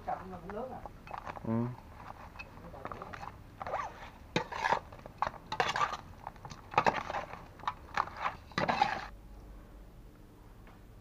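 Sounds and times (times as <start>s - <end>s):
metal spoon scraping metal basin: 2.0s - 6.0s, 6.7s - 9.1s.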